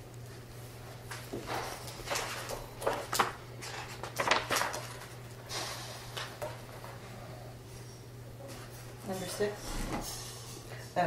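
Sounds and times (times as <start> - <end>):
paper rustling: 2.1 - 5.2.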